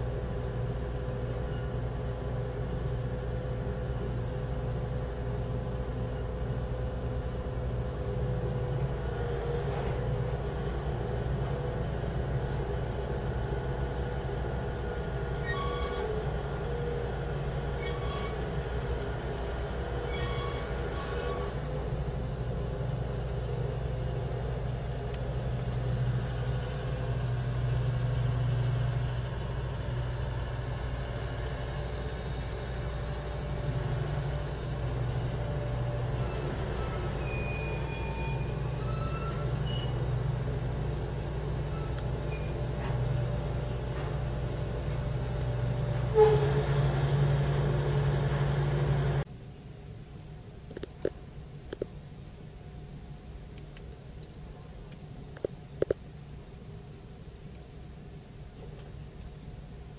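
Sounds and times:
engine and winches droning: 0:00.0 - 0:49.4
high squeals: 0:15.4 - 0:16.2, 0:17.8 - 0:18.5, 0:20.0 - 0:21.6, 0:36.2 - 0:40.1.

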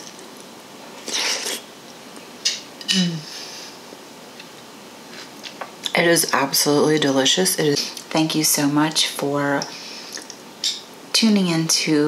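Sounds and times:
slurping soup off a spoon: 0:01.0 - 0:01.6
person humming mm: 0:02.9 - 0:03.4.

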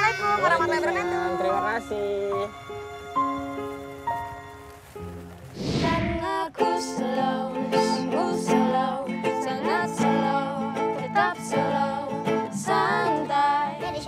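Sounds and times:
acoustic guitar: 0:00.0 - 0:14.0
ukulele: 0:05.8 - 0:14.0
child singing: 0:06.1 - 0:14.0.

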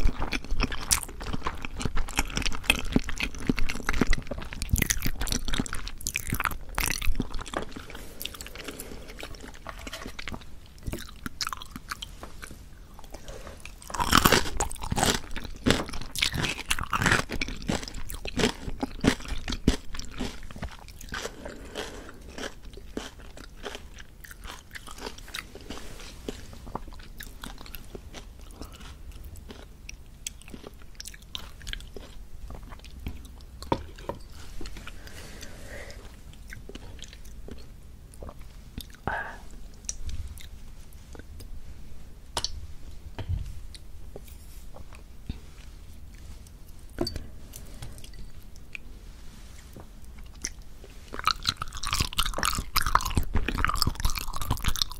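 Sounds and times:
wet sticky chewing: 0:00.0 - 0:09.6, 0:50.1 - 0:54.9.

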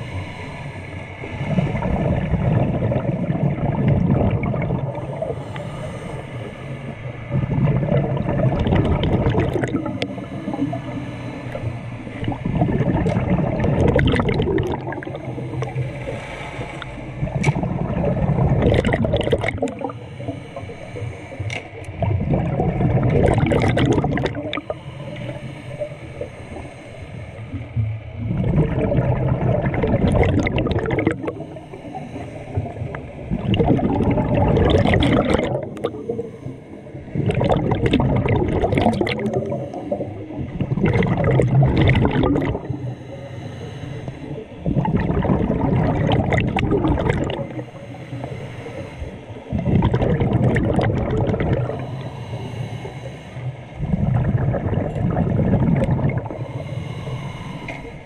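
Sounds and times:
diver breathing through regulator: 0:00.0 - 0:03.2, 0:04.8 - 0:22.5, 0:23.2 - 0:58.0
bubbling exhalations: 0:01.5 - 0:05.3, 0:07.3 - 0:10.7, 0:12.2 - 0:20.0, 0:21.9 - 0:24.8, 0:28.2 - 0:31.6, 0:32.5 - 0:36.2, 0:37.1 - 0:42.8, 0:44.6 - 0:48.2, 0:49.4 - 0:52.0, 0:53.8 - 0:56.4.

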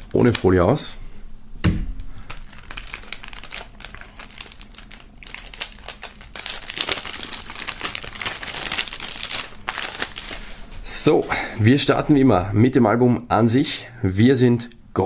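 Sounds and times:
cellophane wrap crackling: 0:00.0 - 0:00.7, 0:02.0 - 0:11.0.

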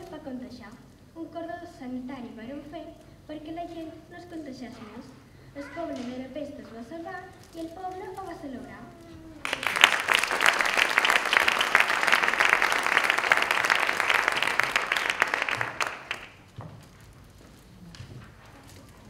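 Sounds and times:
audience applauding: 0:09.4 - 0:16.6.

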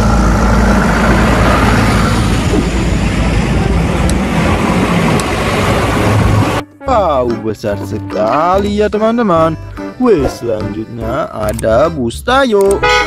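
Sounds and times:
rushing noise: 0:00.0 - 0:06.6
diesel engine running: 0:00.0 - 0:06.7.

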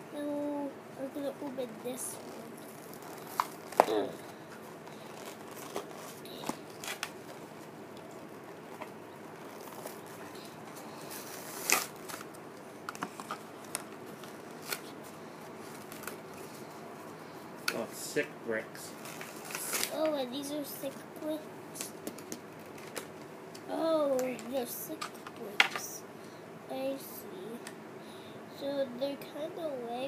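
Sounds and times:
plastic wrapping rustling and tearing: 0:02.1 - 0:07.7, 0:08.6 - 0:16.7, 0:19.0 - 0:20.0, 0:21.8 - 0:23.2.

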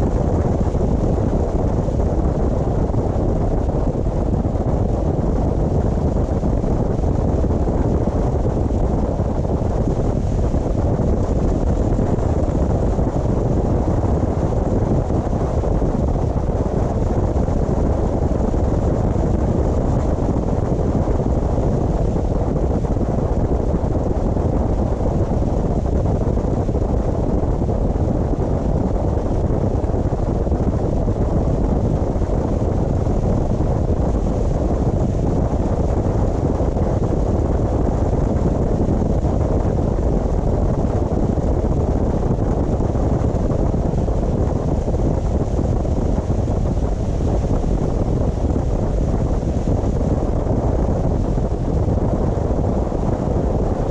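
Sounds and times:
car road and wind noise: 0:00.0 - 0:53.9.

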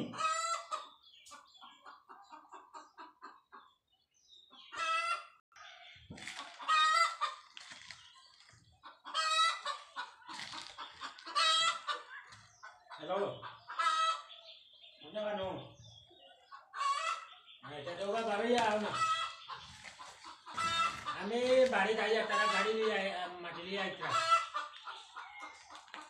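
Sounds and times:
loud high-pitched chicken calls: 0:00.0 - 0:03.4, 0:04.6 - 0:05.4, 0:06.1 - 0:08.0, 0:08.8 - 0:14.4, 0:16.5 - 0:23.1, 0:24.0 - 0:26.0
chickens clucking: 0:00.0 - 0:26.0.

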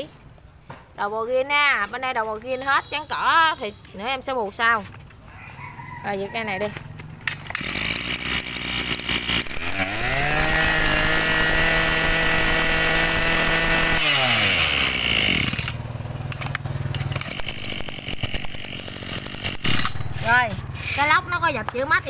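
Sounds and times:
brush cutter engine revving: 0:06.9 - 0:22.0.

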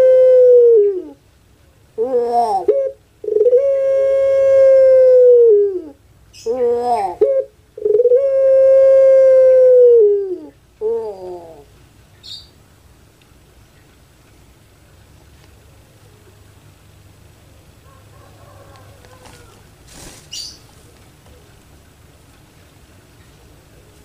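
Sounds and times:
dove crowing coo: 0:00.0 - 0:01.2, 0:02.0 - 0:11.7, 0:17.7 - 0:21.6.

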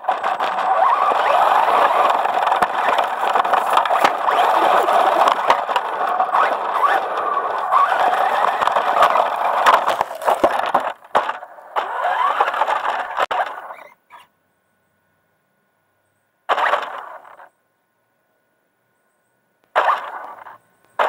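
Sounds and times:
chassis knocks and rattles: 0:00.0 - 0:13.5
electric motor whining: 0:00.0 - 0:13.9.

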